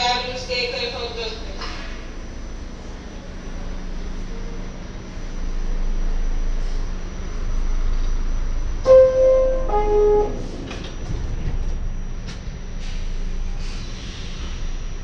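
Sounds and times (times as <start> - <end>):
train car rumble and hiss: 0.0 - 15.0
two-tone door chime: 8.9 - 10.8.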